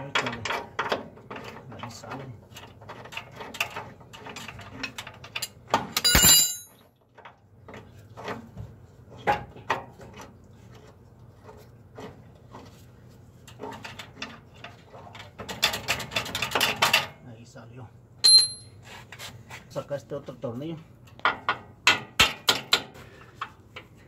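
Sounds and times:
loud metallic clang: 6.0s - 6.7s, 18.2s - 18.7s.

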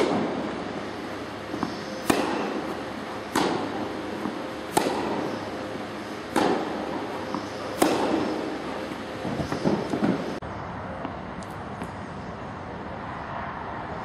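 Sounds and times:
tennis ball hit by rackets: 0.0s - 0.4s, 1.5s - 5.6s, 6.3s - 9.0s.

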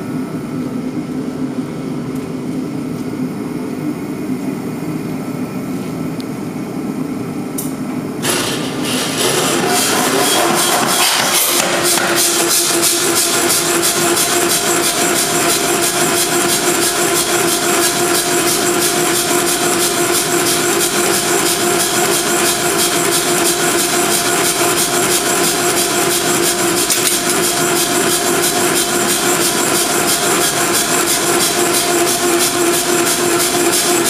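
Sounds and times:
air hammer compressor beating: 8.2s - 34.0s.

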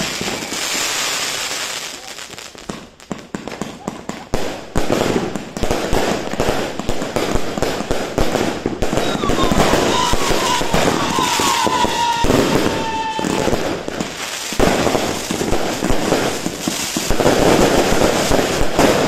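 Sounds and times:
firework whistle: 0.0s - 1.2s, 8.8s - 13.9s
fireworks bangs and crackling: 0.0s - 19.0s.

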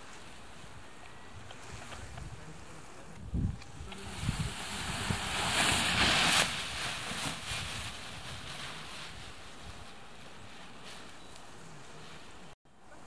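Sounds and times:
wind buffeting microphone: 0.6s - 10.5s.

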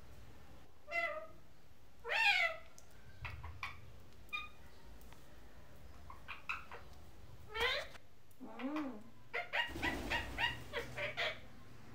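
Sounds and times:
parakeet calling: 9.3s - 11.4s.

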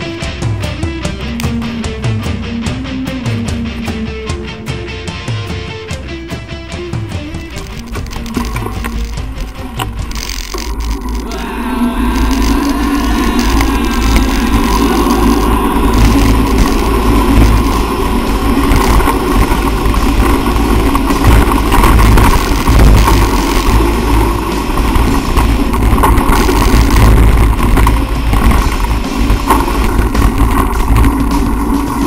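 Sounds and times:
steady low rumble: 0.0s - 32.0s
bike rattling and knocking: 6.0s - 11.4s, 12.0s - 32.0s
wind buffeting microphone: 7.4s - 32.0s.

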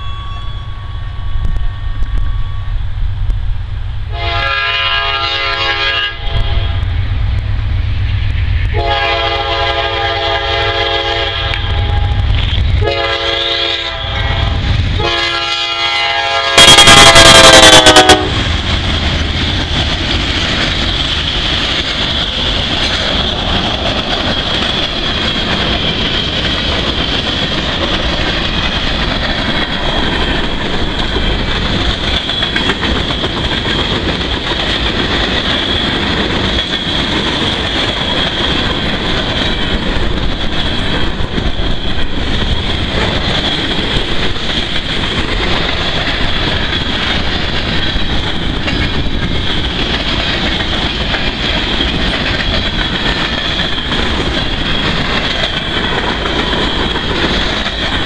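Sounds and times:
locomotive air horn blasts: 4.1s - 6.9s, 8.7s - 12.2s, 12.8s - 18.4s
freight cars rumbling and clattering: 17.0s - 58.0s.

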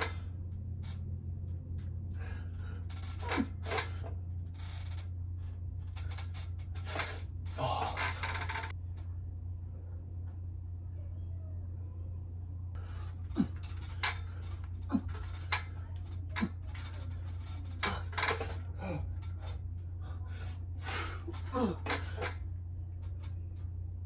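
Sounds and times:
steady low hum: 0.0s - 24.0s
man breathing hard and grunting: 6.9s - 8.3s, 17.8s - 22.3s.

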